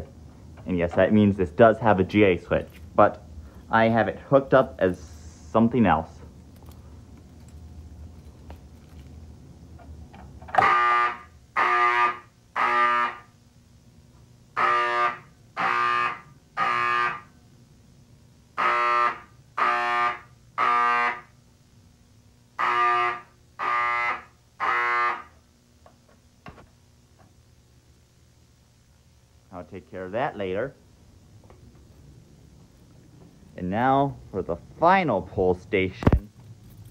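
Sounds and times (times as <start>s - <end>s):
fire alarm horn blasts: 10.5s - 13.4s, 14.5s - 17.4s, 18.5s - 21.4s, 22.5s - 25.4s.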